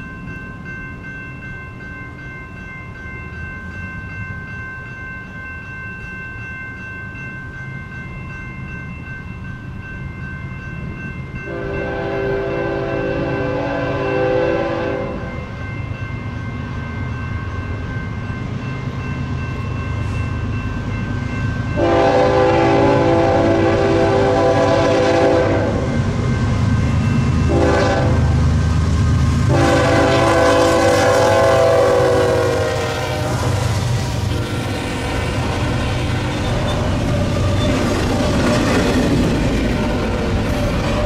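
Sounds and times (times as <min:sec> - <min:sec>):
train rumbling past: 0:00.0 - 0:41.0
locomotive air horn blasts: 0:11.5 - 0:15.3, 0:21.8 - 0:25.9, 0:27.5 - 0:28.4, 0:29.5 - 0:33.6.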